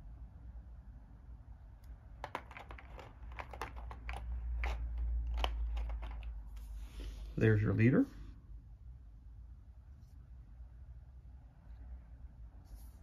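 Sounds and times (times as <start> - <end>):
packaging crinkling and clicking: 2.2 - 6.4.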